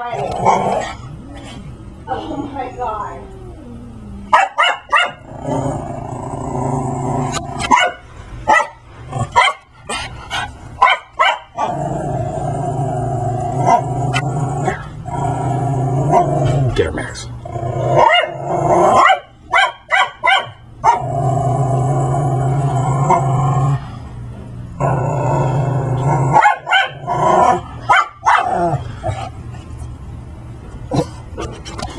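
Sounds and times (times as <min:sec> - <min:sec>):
dog growling: 0:00.0 - 0:07.7, 0:09.0 - 0:10.6, 0:11.5 - 0:19.2, 0:20.8 - 0:24.0, 0:24.7 - 0:29.5, 0:30.9 - 0:31.9
dog barking: 0:04.3 - 0:05.2, 0:07.6 - 0:09.7, 0:10.8 - 0:11.7, 0:18.0 - 0:21.0, 0:26.3 - 0:27.0, 0:27.9 - 0:28.6.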